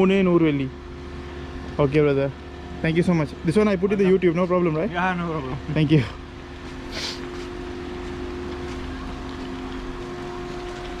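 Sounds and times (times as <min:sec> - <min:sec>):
steady two-tone hum: 0:00.0 - 0:11.0
brief hiss: 0:06.9 - 0:07.3.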